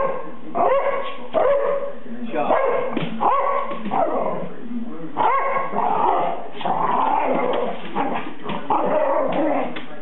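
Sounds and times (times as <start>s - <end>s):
dog growling barks: 5.2s - 9.8s.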